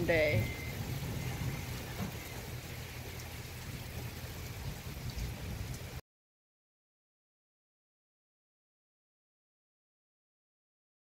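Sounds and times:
heavy rain pouring: 0.0s - 6.0s.

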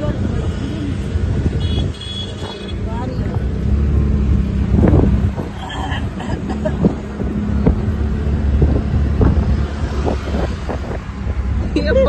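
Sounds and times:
auto-rickshaw engine running: 0.0s - 12.0s
wind rushing: 3.2s - 12.0s.

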